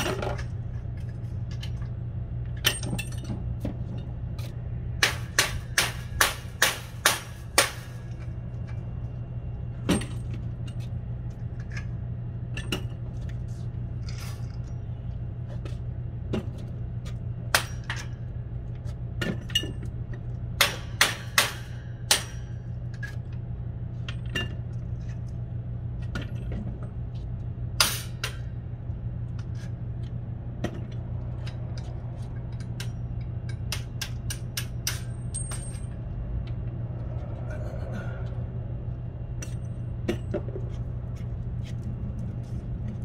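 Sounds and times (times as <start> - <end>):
metal clinks and knocks: 0.0 - 4.1, 30.6 - 36.2
steady low hum: 0.0 - 43.0.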